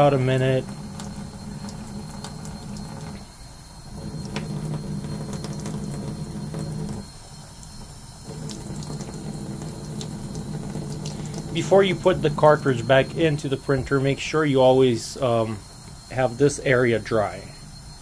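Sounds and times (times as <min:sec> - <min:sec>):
faucet water splashing into sink: 0:00.0 - 0:03.3, 0:04.0 - 0:13.5.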